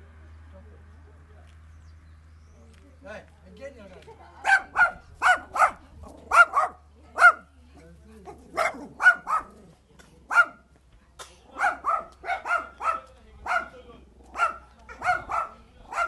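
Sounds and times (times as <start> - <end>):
small dog barking: 4.4 - 7.5, 8.3 - 9.7, 10.3 - 10.7, 11.5 - 16.0.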